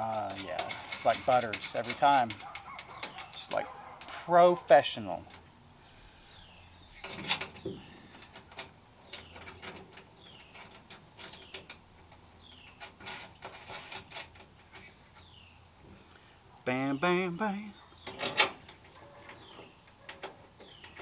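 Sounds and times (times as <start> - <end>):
bird chirping: 2.4 - 5.1, 5.8 - 13.5, 14.6 - 21.0.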